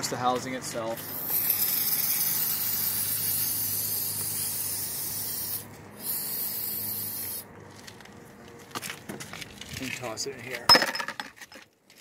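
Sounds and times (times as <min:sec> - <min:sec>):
aerosol spray hissing: 0:01.0 - 0:07.5.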